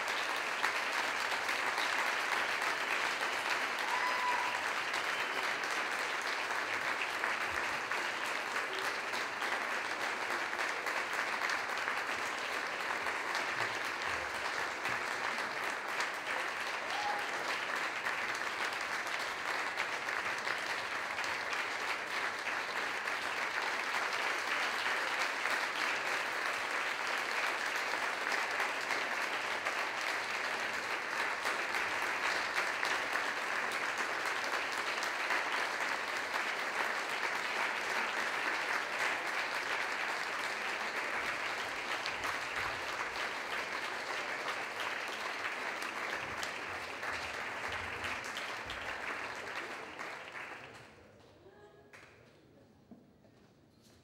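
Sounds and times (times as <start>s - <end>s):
audience applauding: 0.0s - 51.1s.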